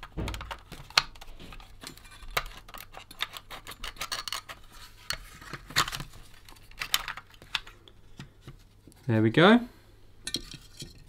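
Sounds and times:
plastic clicks creaks and scrapes: 0.0s - 8.6s.

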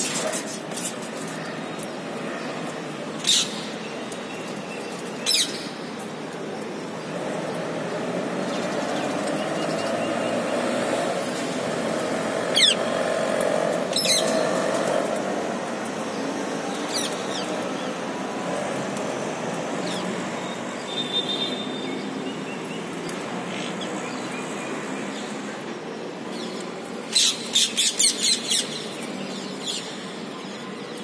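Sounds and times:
parakeets screeching: 12.5s - 12.9s, 13.9s - 14.5s, 27.1s - 28.9s.

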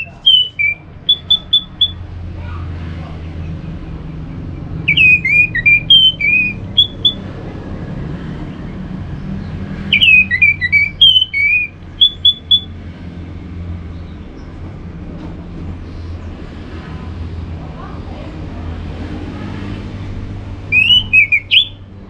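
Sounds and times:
thrush singing whistled notes: 0.0s - 2.0s, 4.6s - 7.4s, 9.8s - 12.8s, 20.6s - 21.9s.

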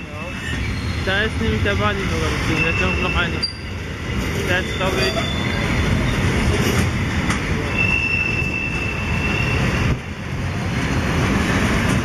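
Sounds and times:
train wheels rumbling on rails: 0.0s - 12.0s
high wheel squeal: 0.2s - 1.2s, 4.6s - 6.4s, 7.7s - 9.8s.

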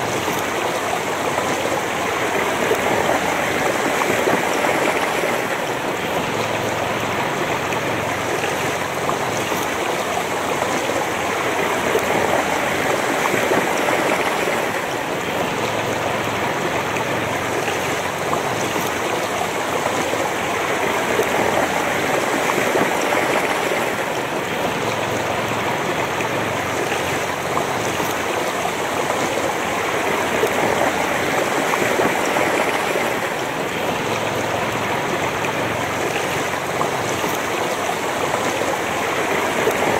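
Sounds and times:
river babbling over stones: 0.0s - 39.9s.

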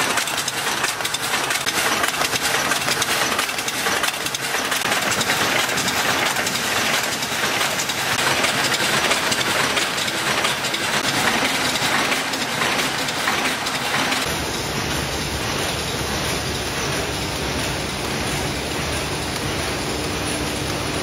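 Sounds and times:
machine metallic clatter: 0.0s - 21.0s
machine hiss with low rumble: 11.1s - 21.0s.

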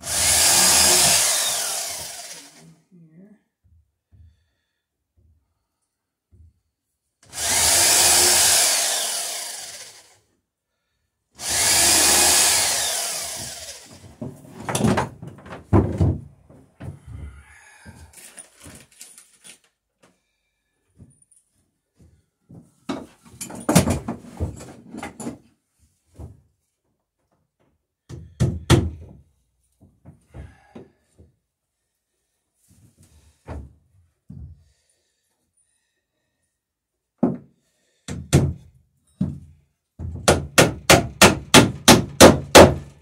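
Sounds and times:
electric drill boring into wood: 0.0s - 2.7s, 7.2s - 10.3s, 11.4s - 14.1s
handling knocks and clatter: 14.0s - 17.0s, 22.8s - 25.5s.

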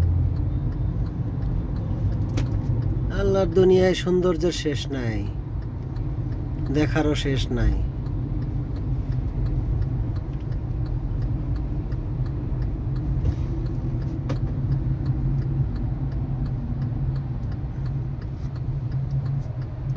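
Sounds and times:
car engine and tyres rumbling: 0.0s - 19.9s
light regular ticking: 0.0s - 19.9s.

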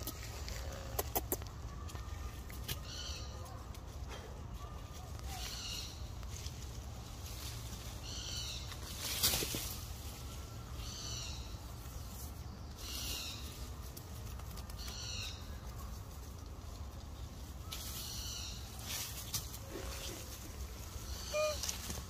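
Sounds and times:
animal high-pitched calls: 21.0s - 22.0s.

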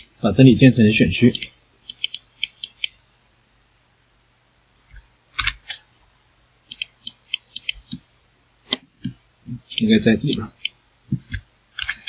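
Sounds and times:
mouse and keyboard clicks: 1.3s - 3.0s, 6.7s - 8.0s, 8.7s - 12.0s.

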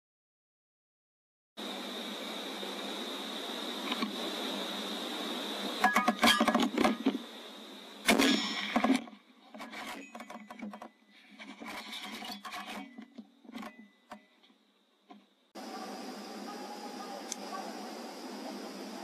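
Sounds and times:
suppressed rifle shot: 8.0s - 9.0s.

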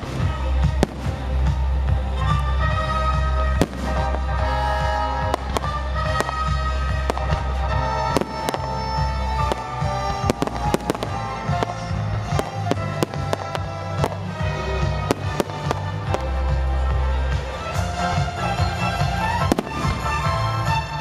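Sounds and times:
fireworks bangs and crackles: 0.0s - 21.0s
music with heavy bass: 0.0s - 21.0s.

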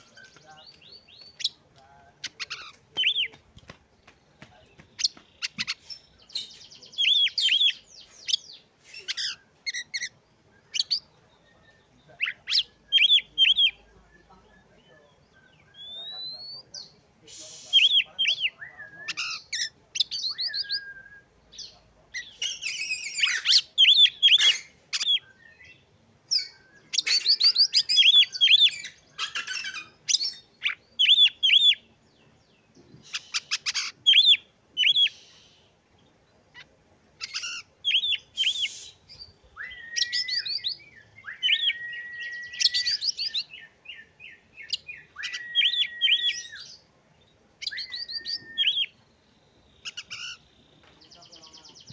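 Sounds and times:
bird chattering song and trills: 0.0s - 51.9s
bird long steady whistles: 20.2s - 21.4s, 38.0s - 46.8s, 47.6s - 49.2s.

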